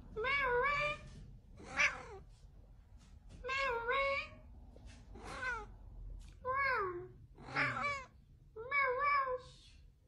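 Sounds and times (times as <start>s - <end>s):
cat meowing: 0.2s - 2.3s, 5.2s - 5.7s, 6.5s - 9.5s.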